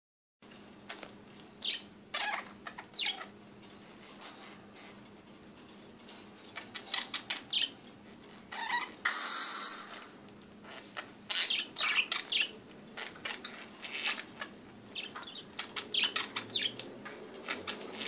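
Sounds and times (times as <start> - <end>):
budgerigars chirping: 1.6 - 3.3, 6.6 - 7.8, 10.7 - 18.0.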